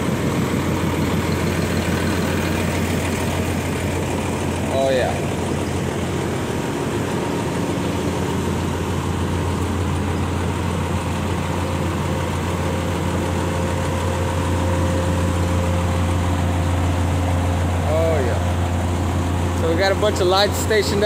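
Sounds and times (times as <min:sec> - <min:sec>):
engine idling: 0:00.0 - 0:21.0.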